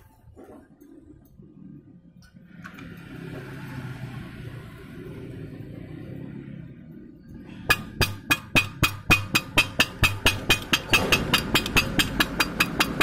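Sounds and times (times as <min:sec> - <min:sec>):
hammer tapping on metal: 0:07.6 - 0:13.0.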